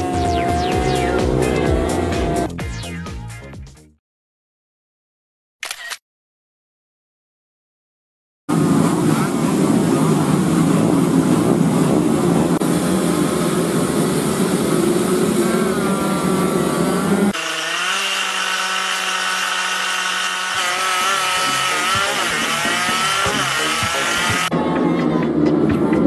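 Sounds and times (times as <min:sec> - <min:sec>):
single engine accelerating: 0:00.0 - 0:02.5, 0:08.5 - 0:24.6
mini bikes revving together: 0:13.1 - 0:24.5.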